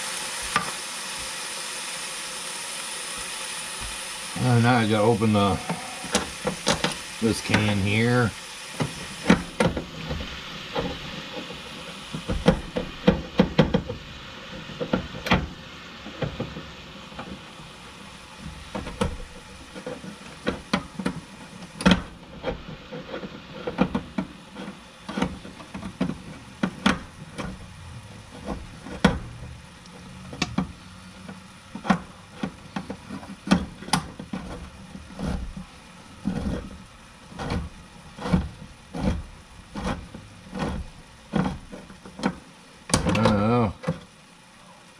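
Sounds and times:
can opener clicking: 0:05.6 - 0:08.0.

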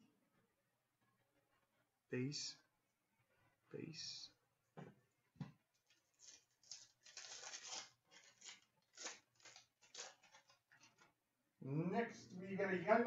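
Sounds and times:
trading cards rustling and sliding: 0:05.9 - 0:11.0.

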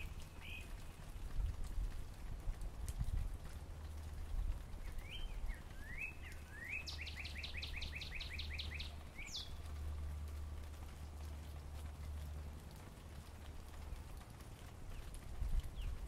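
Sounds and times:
bird singing whistled notes: 0:00.0 - 0:00.8, 0:04.8 - 0:09.6
low background rumble: 0:00.0 - 0:16.0.

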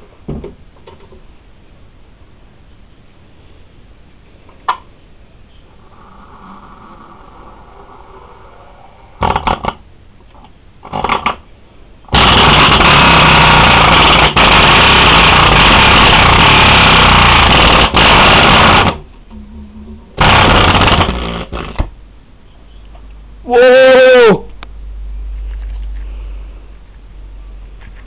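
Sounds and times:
distorted rattling subwoofer bass: 0:05.8 - 0:10.0, 0:12.0 - 0:22.0.

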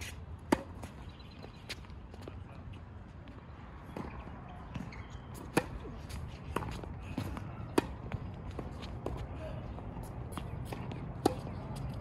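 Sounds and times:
tennis ball bouncing on hard court: 0:00.5 - 0:01.0, 0:03.9 - 0:09.3, 0:10.3 - 0:12.0.

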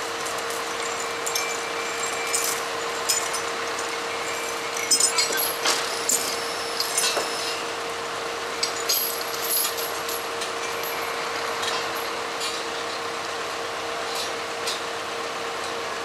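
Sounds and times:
metallic clinks and knocks: 0:00.8 - 0:05.7.

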